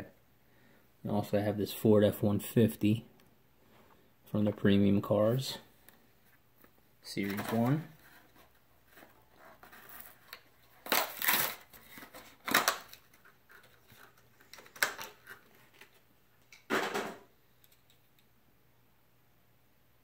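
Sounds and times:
packaging rustling and ripping: 7.3 - 16.0.

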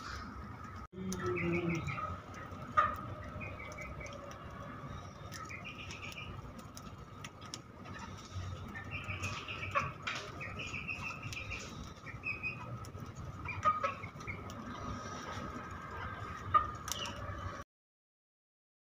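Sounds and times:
beaks pecking at seed: 1.0 - 17.5
budgerigars chirping: 1.2 - 6.4, 7.8 - 15.2.

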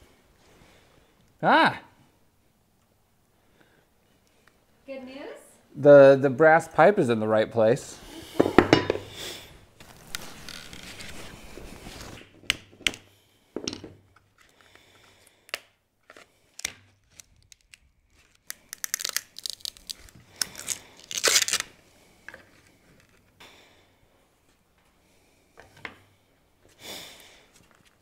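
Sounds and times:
scraper scraping: 9.8 - 12.2
laminate cracking and tearing: 9.8 - 13.0, 15.4 - 21.8.

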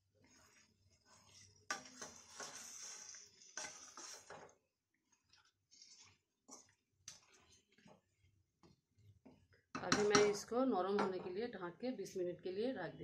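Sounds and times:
spatula scraping thick syrup: 0.0 - 8.3
light scrapes and taps on pan: 1.1 - 4.6.

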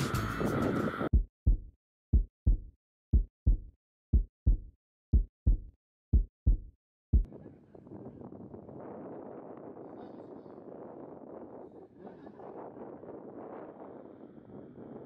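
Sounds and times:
heartbeat thumps: 1.1 - 7.3.

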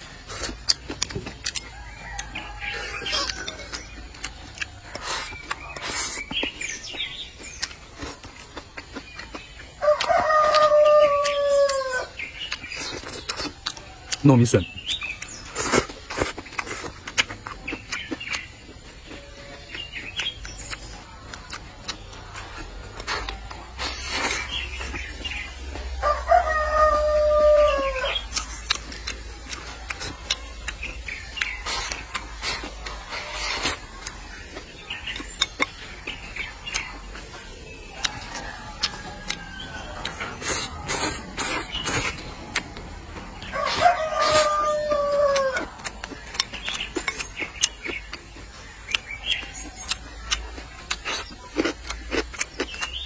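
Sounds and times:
person eating with smacking: 0.0 - 14.2, 14.8 - 53.0
rooster crowing: 1.5 - 3.8, 9.8 - 12.2, 25.8 - 28.2, 37.9 - 41.3, 43.4 - 45.9.

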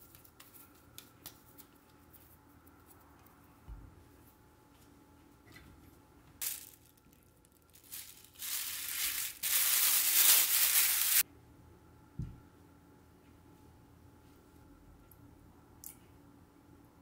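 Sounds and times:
plastic bag crinkling: 6.4 - 11.2.

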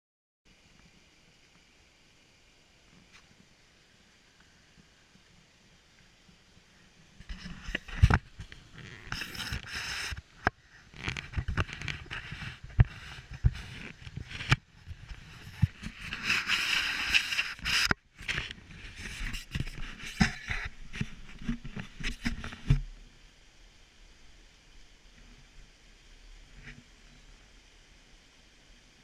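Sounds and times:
hiss: 0.9 - 18.0.

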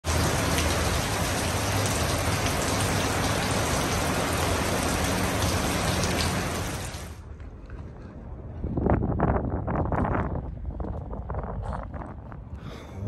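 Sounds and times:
heavy rain on wet pavement: 0.0 - 7.2.

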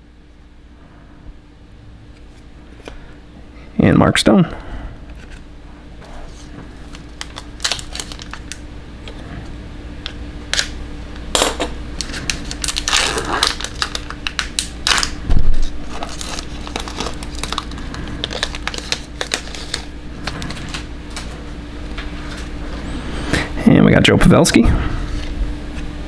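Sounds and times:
cards clicking and rustling: 6.3 - 9.2, 15.9 - 21.3.

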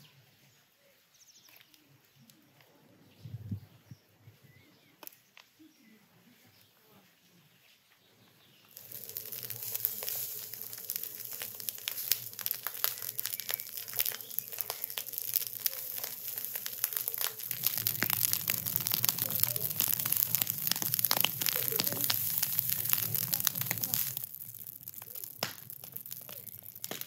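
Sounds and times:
straw fire crackling and popping: 8.6 - 27.0
low rumble: 16.6 - 25.4.

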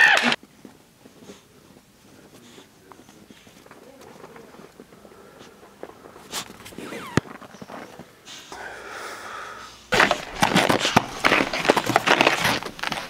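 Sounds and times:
footsteps crunching through snow: 9.9 - 13.0.

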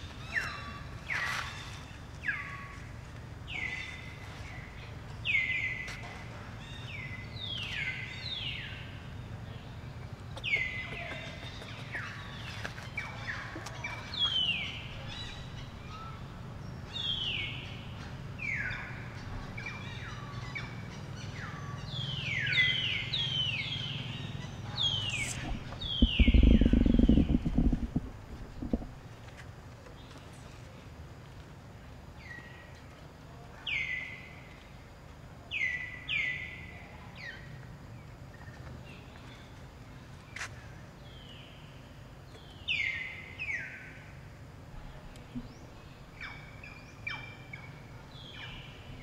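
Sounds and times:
low steady rumble: 11.5 - 29.7
birds whistling descending calls: 21.4 - 28.8.

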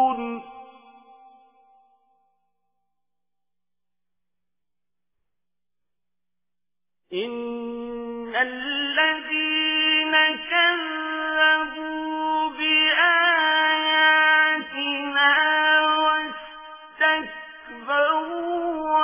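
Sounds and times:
person chanting melodically: 0.0 - 1.9, 7.1 - 19.0.

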